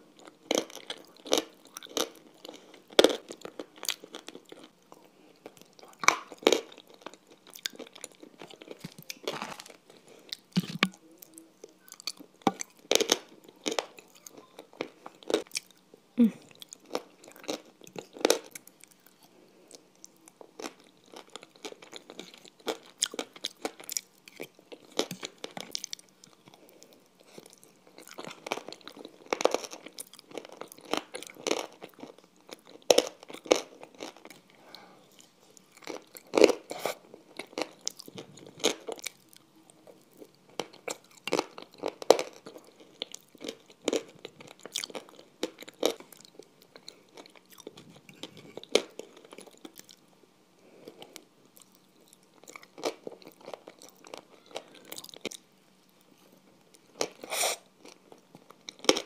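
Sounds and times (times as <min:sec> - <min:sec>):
chewing and crunching food: 0:00.0 - 0:59.0.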